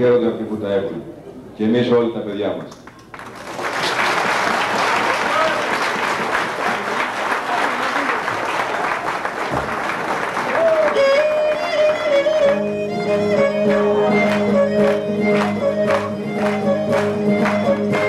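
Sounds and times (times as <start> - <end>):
applause: 2.8 - 12.6, 14.1 - 18.0
crowd din: 9.5 - 18.0
folk tune on melody instrument: 10.7 - 18.0.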